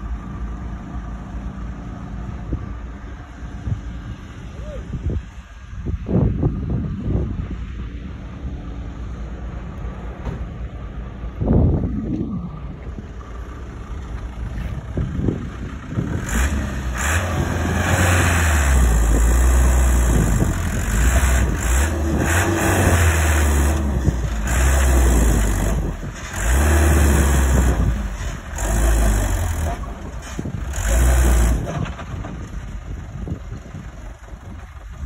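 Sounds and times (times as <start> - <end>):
truck engine revving hard: 15.2 - 33.4.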